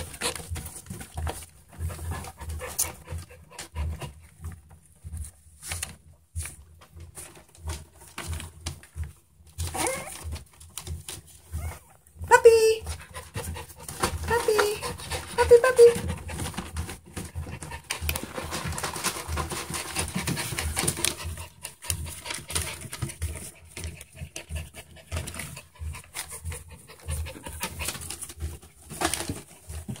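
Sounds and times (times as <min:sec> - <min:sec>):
puppies panting and snuffling: 0:00.0 - 0:30.0
newspaper rustling: 0:17.9 - 0:23.2.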